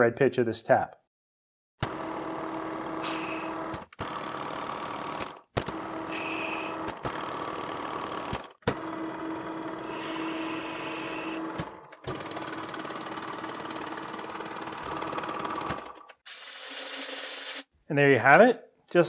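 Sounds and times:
metal lathe humming: 0:08.9 - 0:11.6.

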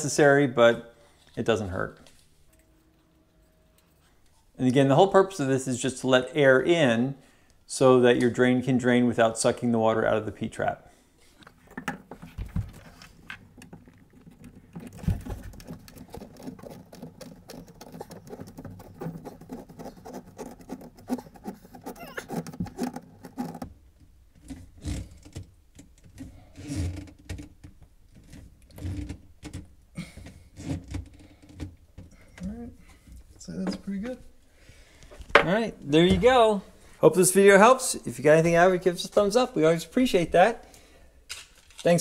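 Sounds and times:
hand rubbing on plastic fitting: 0:11.3 - 0:23.7.

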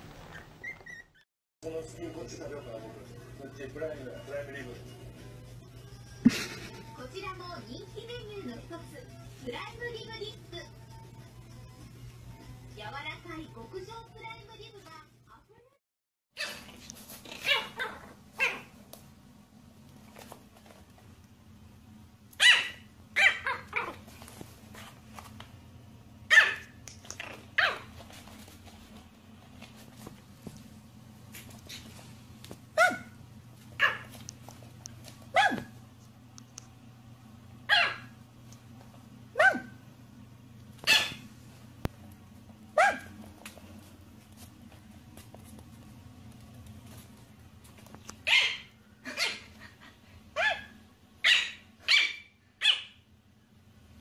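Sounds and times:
puppy yapping: 0:16.4 - 0:18.8, 0:22.4 - 0:24.0, 0:26.3 - 0:28.0, 0:32.8 - 0:33.2, 0:33.8 - 0:34.2, 0:35.3 - 0:35.8, 0:37.7 - 0:38.2, 0:39.4 - 0:39.8, 0:40.8 - 0:41.3, 0:42.8 - 0:43.2, 0:48.2 - 0:49.5, 0:50.4 - 0:53.0.

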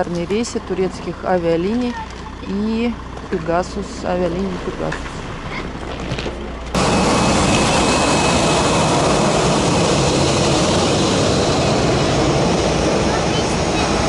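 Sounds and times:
faint high engine whine: 0:00.0 - 0:14.0
jet engines roaring: 0:04.0 - 0:14.0.

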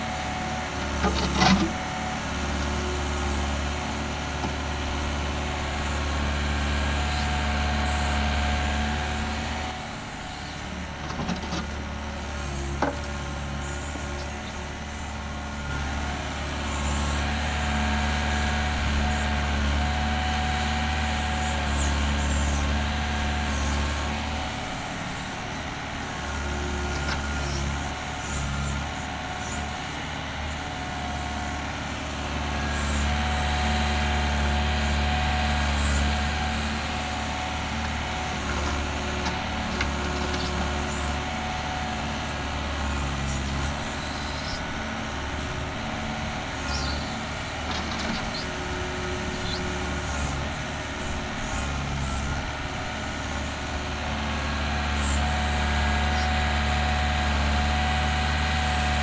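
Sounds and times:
excavator diesel engine under load: 0:00.0 - 0:59.0
short high squeaks: 0:46.6 - 0:47.1.

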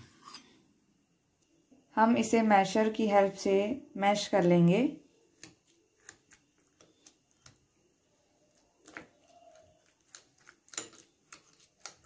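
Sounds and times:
soft squishing: 0:05.0 - 0:12.0.

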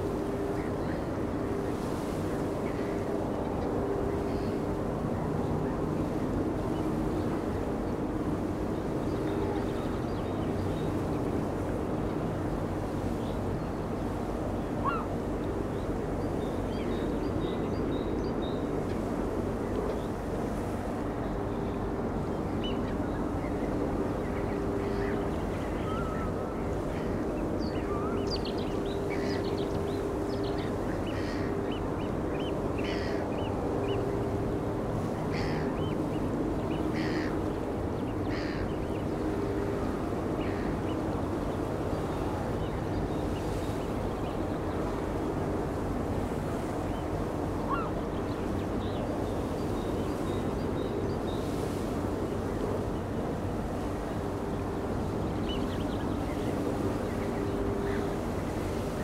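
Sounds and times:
birds calling: 0:14.2 - 0:15.3, 0:24.3 - 0:44.2, 0:46.2 - 0:52.0.

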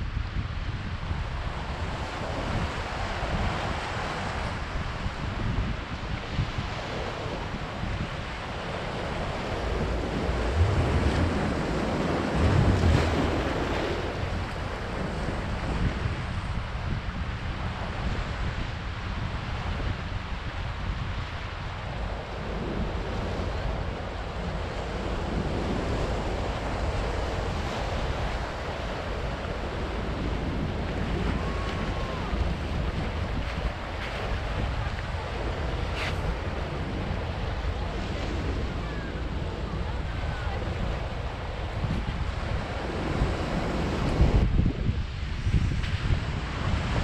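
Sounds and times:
wind on microphone: 0:00.0 - 0:47.0
surf breaking on rocks: 0:09.0 - 0:15.6, 0:22.4 - 0:44.5.

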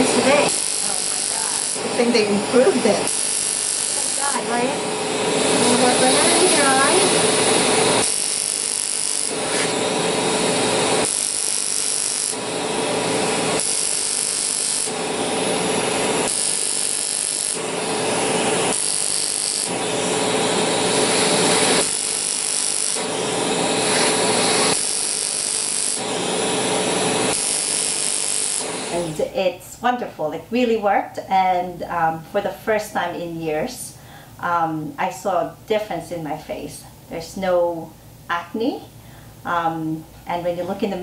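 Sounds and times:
laser handpiece firing: 0:00.0 - 0:01.8, 0:03.0 - 0:04.2, 0:08.0 - 0:09.4, 0:11.0 - 0:12.4, 0:13.6 - 0:15.0, 0:16.2 - 0:17.7, 0:18.4 - 0:19.8, 0:21.1 - 0:23.2, 0:23.9 - 0:26.1, 0:27.3 - 0:28.8
smoke evacuator whirring: 0:00.0 - 0:29.6.

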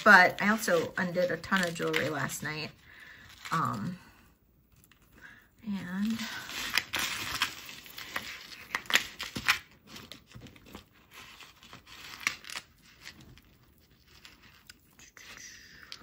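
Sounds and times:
rustling: 0:04.7 - 0:16.0.

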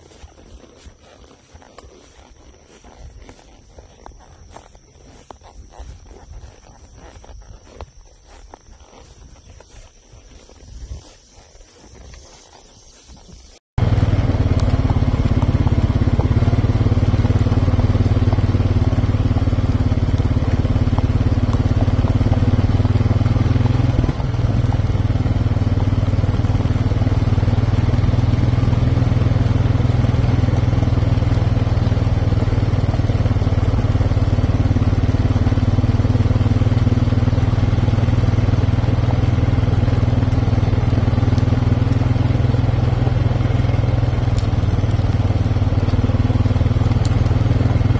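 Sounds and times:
vehicle engine running: 0:13.8 - 0:47.9.

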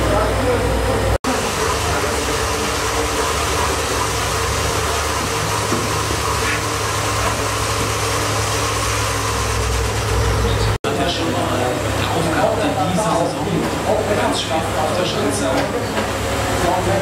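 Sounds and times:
bike tyres spinning on rollers: 0:01.3 - 0:10.8.

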